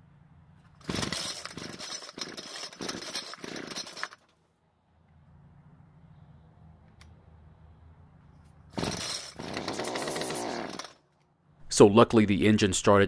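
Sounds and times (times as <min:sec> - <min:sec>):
string trimmer engine running: 0:00.8 - 0:04.2, 0:08.8 - 0:10.9.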